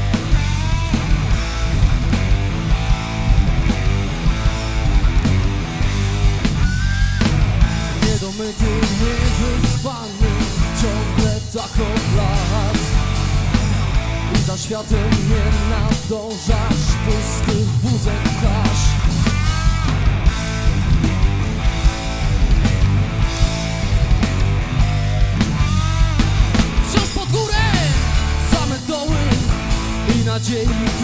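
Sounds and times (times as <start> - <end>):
rock band playing: 0.0 - 31.0
man singing: 8.0 - 13.2, 14.3 - 19.3, 26.8 - 31.0.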